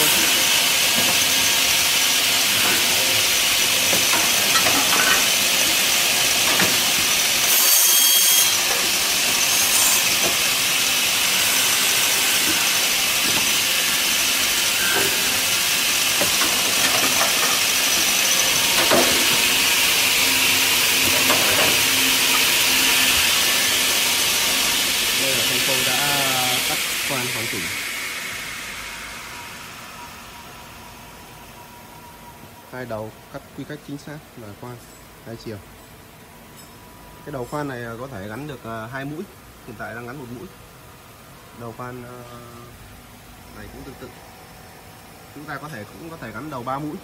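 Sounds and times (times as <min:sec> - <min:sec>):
cutting and drilling machine whirring: 0:00.0 - 0:27.8.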